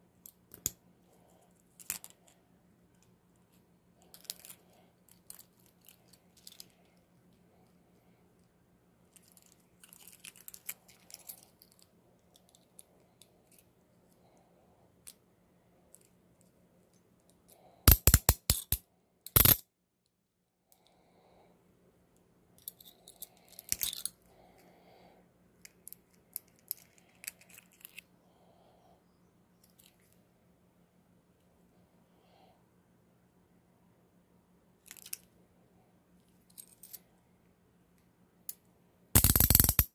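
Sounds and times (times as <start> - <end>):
handcuffs clicking: 17.9 - 19.6, 22.6 - 24.2, 39.2 - 39.9
loud sharp handcuff clicks: 17.9 - 19.6, 39.2 - 39.9.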